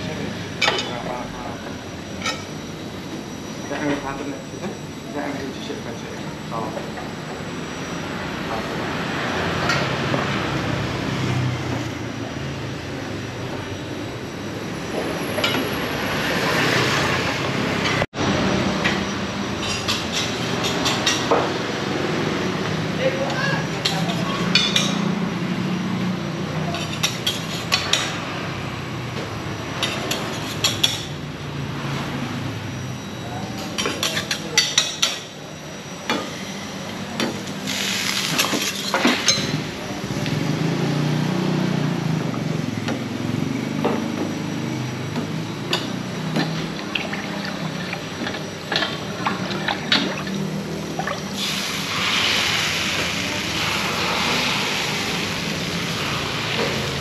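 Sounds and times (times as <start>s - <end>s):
batter hissing in hot pans: 51.3s - 57.0s.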